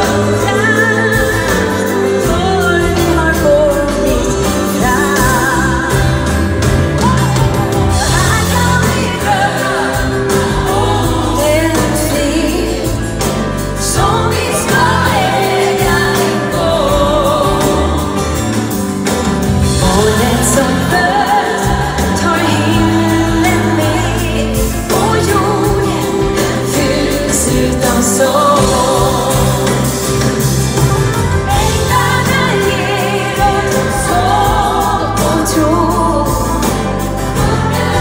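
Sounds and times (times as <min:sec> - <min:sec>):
band playing: 0:00.0 - 0:38.0
group of singers: 0:00.0 - 0:38.0
woman singing lead: 0:00.0 - 0:38.0.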